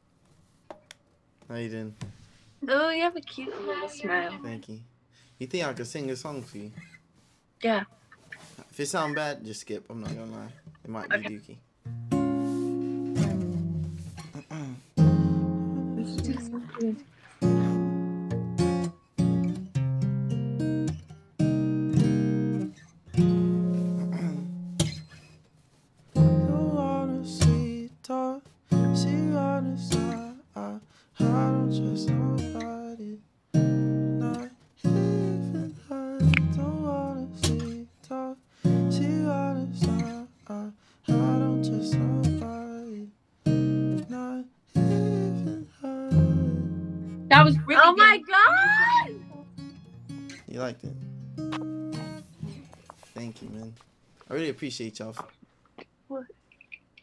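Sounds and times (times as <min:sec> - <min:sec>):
acoustic guitar strummed chords: 0:11.9 - 0:14.4, 0:15.0 - 0:16.7, 0:17.4 - 0:25.0, 0:26.2 - 0:27.9, 0:28.7 - 0:30.4, 0:31.2 - 0:32.9, 0:33.6 - 0:37.9, 0:38.6 - 0:40.3, 0:41.1 - 0:42.9, 0:44.8 - 0:52.7
person singing softly: 0:15.7 - 0:17.1, 0:26.4 - 0:33.2, 0:34.2 - 0:43.1, 0:44.1 - 0:46.7.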